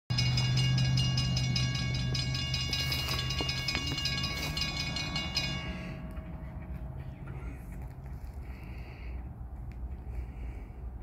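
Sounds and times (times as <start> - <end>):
high metallic whine: 0.1 - 7.8
low engine drone: 0.1 - 11.0.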